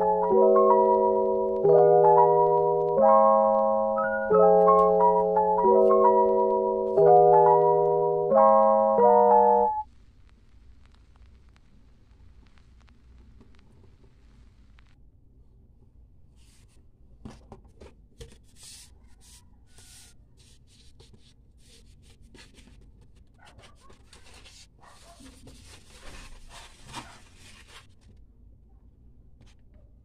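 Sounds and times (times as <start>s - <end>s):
paper and plastic rustling: 21.8s - 28.2s.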